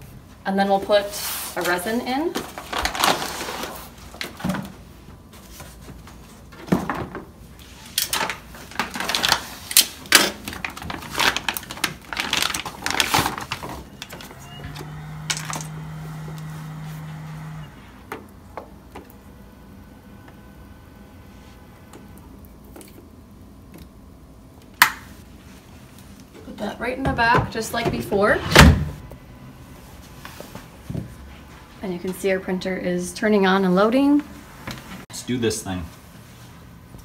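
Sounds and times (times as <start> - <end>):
plastic bag crinkling: 8.7 - 14.1
steady low hum: 12.8 - 37.0.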